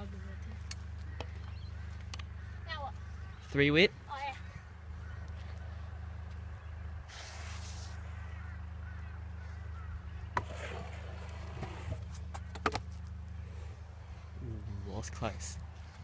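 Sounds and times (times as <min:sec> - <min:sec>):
scooter wheels rolling on concrete: 0:10.3 - 0:13.4.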